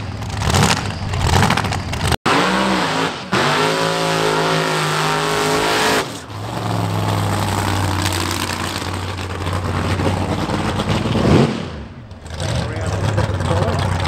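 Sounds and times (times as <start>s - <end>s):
drag car engine revving: 0.0s - 14.0s
drag car engine idling: 11.9s - 14.0s.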